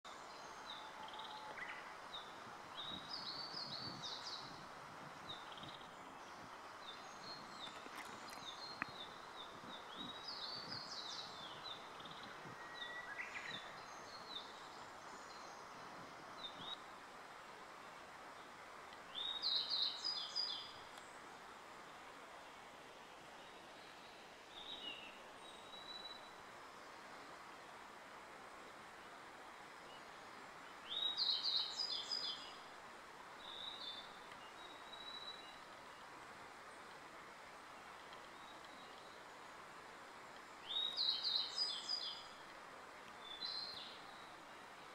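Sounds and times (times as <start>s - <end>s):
background hiss: 0.0s - 44.9s
bird singing thin high phrases: 9.7s - 14.5s.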